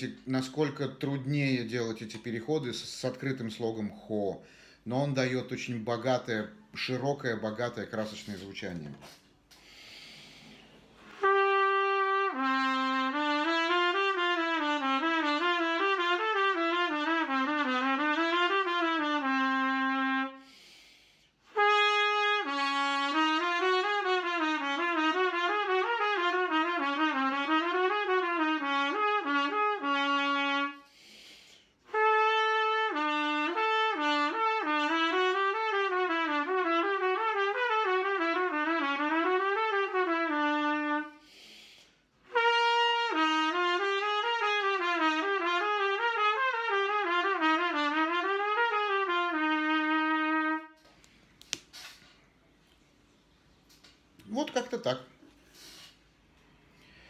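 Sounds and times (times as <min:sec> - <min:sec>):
quick breath: 0:04.4 - 0:04.8, 0:09.5 - 0:11.0, 0:20.4 - 0:21.4, 0:30.8 - 0:31.8, 0:41.2 - 0:42.1, 0:55.4 - 0:57.0
trumpet playing fast runs: 0:11.1 - 0:20.4, 0:21.5 - 0:30.9, 0:31.9 - 0:41.2, 0:42.3 - 0:50.8.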